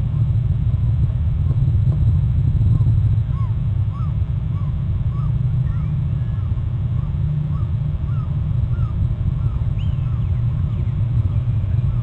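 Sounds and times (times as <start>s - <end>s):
steady low rumble: 0.0s - 12.0s
short bird calls: 3.3s - 11.0s.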